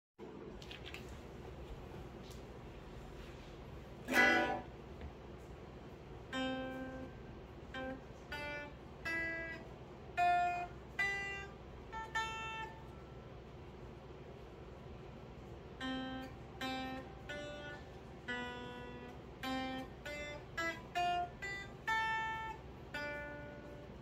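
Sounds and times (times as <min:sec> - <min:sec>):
electric guitar notes and chords: 0:04.1 - 0:04.8, 0:06.2 - 0:13.0, 0:15.8 - 0:24.0.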